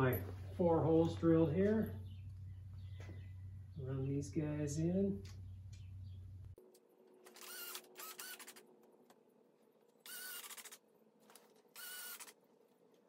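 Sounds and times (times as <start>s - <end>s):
cordless drill driving screws: 7.4s - 8.6s, 10.1s - 10.8s, 11.8s - 12.4s.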